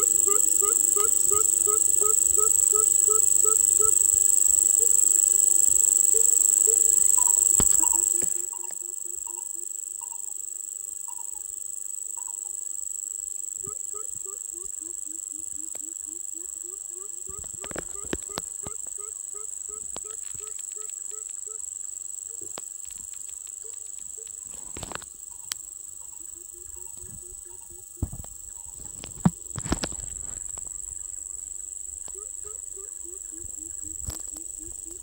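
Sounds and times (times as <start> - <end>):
high insect buzz: 0.0 - 35.0
knocks and thumps: 28.0 - 30.0.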